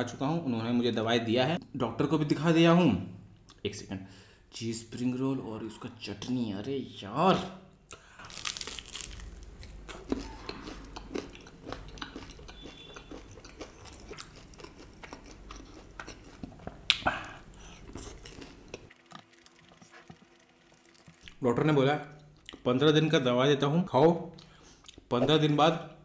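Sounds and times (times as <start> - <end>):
chewing and crunching food: 8.2 - 21.4, 22.1 - 22.7.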